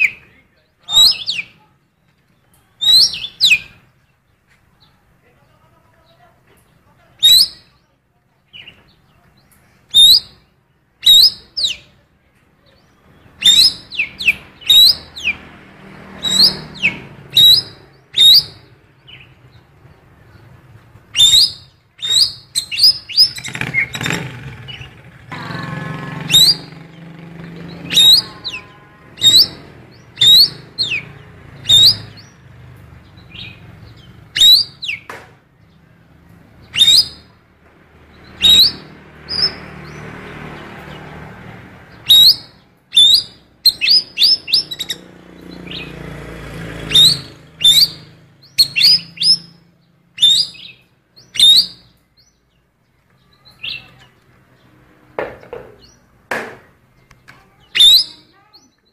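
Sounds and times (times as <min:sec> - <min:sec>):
bird rasping chatter: 0:00.9 - 0:01.6, 0:02.8 - 0:03.9, 0:07.2 - 0:07.7, 0:09.6 - 0:12.0, 0:13.2 - 0:19.3, 0:21.0 - 0:35.1, 0:36.6 - 0:37.4, 0:38.0 - 0:52.0, 0:56.9 - 0:58.9
songbird sharp rising chip calls: 0:02.8 - 0:03.8, 0:07.2 - 0:07.6, 0:09.9 - 0:10.4, 0:11.0 - 0:11.8, 0:13.1 - 0:19.3, 0:21.1 - 0:32.4, 0:33.2 - 0:35.1, 0:36.6 - 0:37.4, 0:38.2 - 0:40.1, 0:41.9 - 0:46.1, 0:46.8 - 0:52.3, 0:57.6 - 0:58.8.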